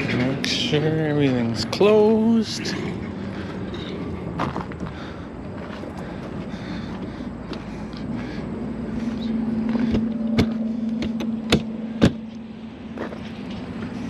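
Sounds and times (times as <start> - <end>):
vehicle engine idling: 0.0 - 14.0
sharp clicks or knocks: 9.8 - 12.4.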